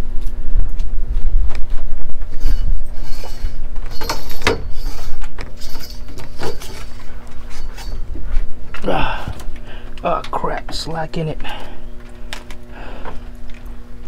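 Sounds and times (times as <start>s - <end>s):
steady low rumble: 0.0s - 14.0s
handling scrapes and knocks: 2.2s - 8.9s.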